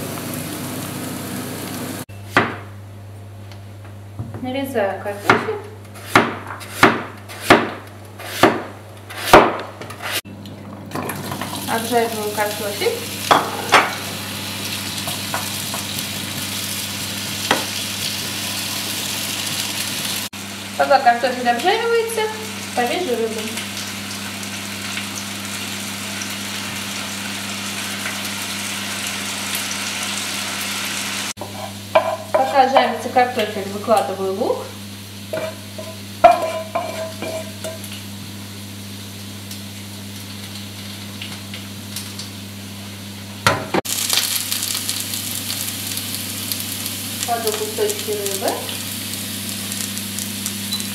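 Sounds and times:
potatoes sizzling in oil: 0.0 - 2.1, 11.2 - 50.9
knife slicing potatoes on board: 5.2 - 10.2.

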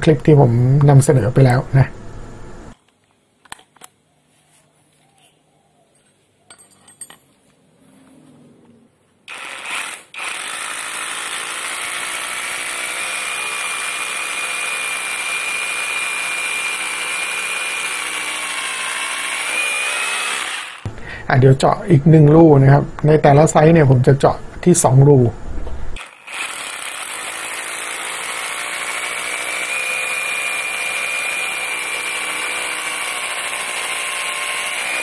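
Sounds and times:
rotary hammer drilling concrete: 9.3 - 20.9, 26.0 - 35.0.

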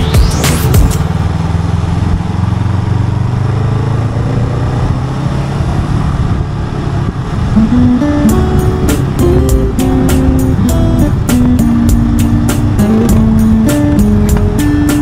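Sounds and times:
music track: 0.0 - 1.2, 7.6 - 15.0
road and wind noise: 0.0 - 15.0
vehicle engine running: 0.0 - 15.0.

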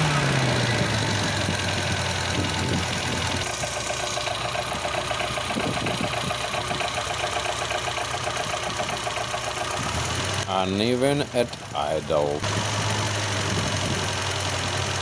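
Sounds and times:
engine idling with clatter: 0.0 - 15.0.

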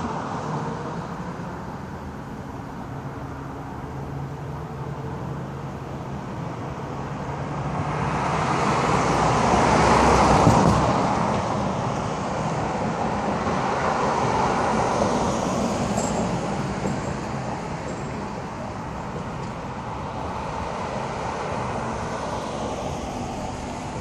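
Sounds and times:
road traffic: 0.0 - 24.0.

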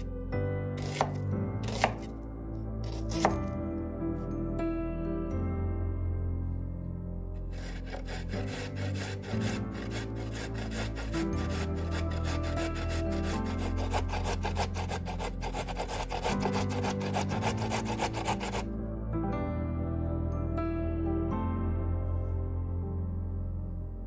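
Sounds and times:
background music: 0.0 - 24.0
carrot grated on metal grater: 7.5 - 18.6.

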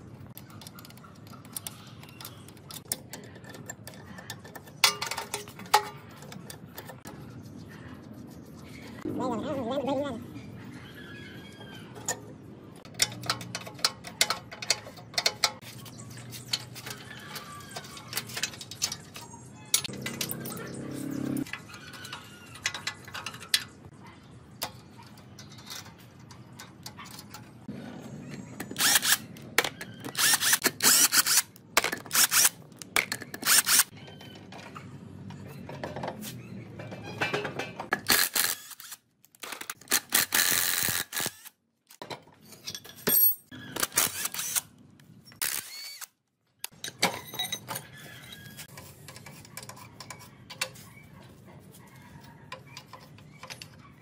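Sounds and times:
wrench clicking and clanking on metal: 0.3 - 7.1, 12.0 - 15.6, 16.3 - 20.6, 21.4 - 23.8.

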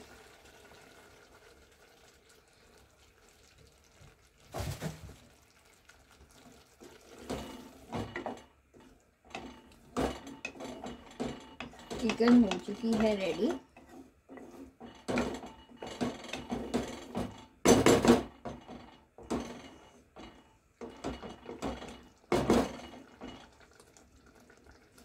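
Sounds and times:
water pouring into pot: 0.0 - 8.2, 21.3 - 25.0
spatula scraping metal pot: 6.9 - 17.2.

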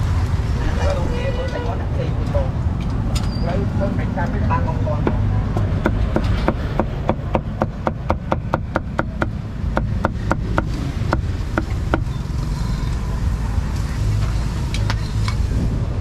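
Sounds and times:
low traffic rumble: 0.0 - 16.0
cleaver chopping meat on wood: 5.0 - 12.1.

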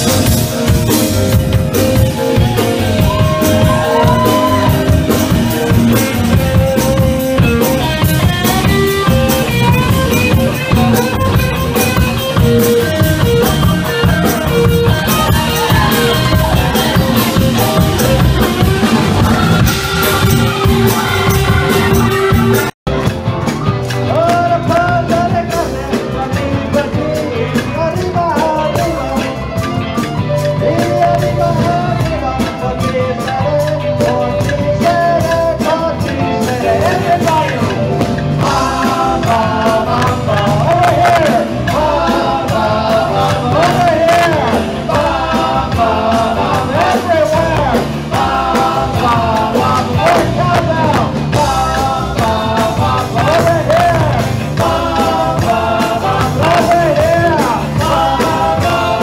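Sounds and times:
live rock band playing: 0.0 - 59.0
several voices singing along: 2.0 - 22.7, 23.9 - 59.0.

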